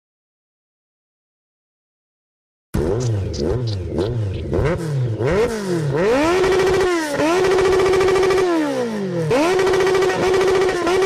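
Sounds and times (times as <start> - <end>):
motorcycle engine revving: 2.8 - 11.0.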